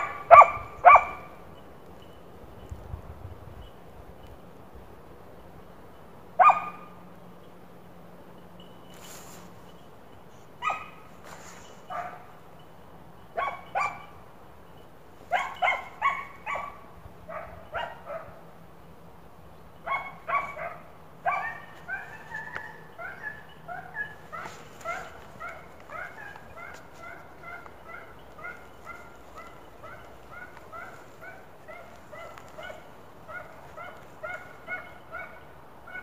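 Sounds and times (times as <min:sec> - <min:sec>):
hound barking and yelping: 0:00.0 - 0:01.4, 0:06.4 - 0:06.9, 0:10.6 - 0:12.4, 0:13.3 - 0:14.2, 0:15.2 - 0:18.4, 0:19.8 - 0:36.0.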